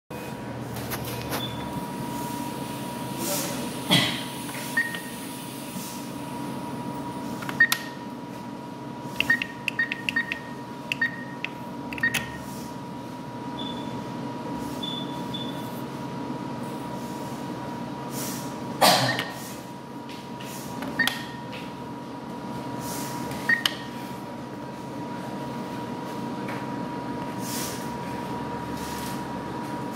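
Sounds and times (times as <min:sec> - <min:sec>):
room hum with faint tone: 0:00.1 - 0:29.9
keypad beeps: 0:04.8 - 0:05.1, 0:07.5 - 0:08.0, 0:09.2 - 0:12.4, 0:13.6 - 0:13.9, 0:14.8 - 0:15.6, 0:21.0 - 0:21.4, 0:23.4 - 0:23.9.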